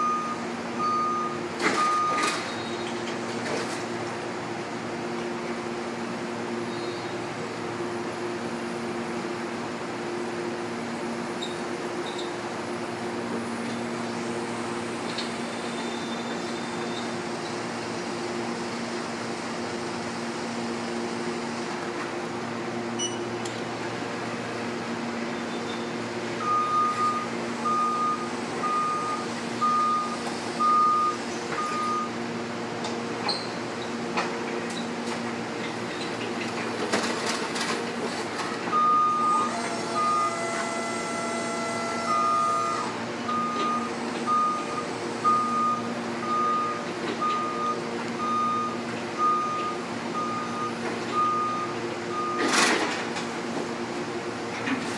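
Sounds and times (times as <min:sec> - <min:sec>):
reach truck travel alarm beeping: 0:00.0 - 0:02.9, 0:15.6 - 0:17.2, 0:23.0 - 0:23.3, 0:25.4 - 0:32.2, 0:38.7 - 0:52.6
long low alarm tone: 0:38.8 - 0:46.8.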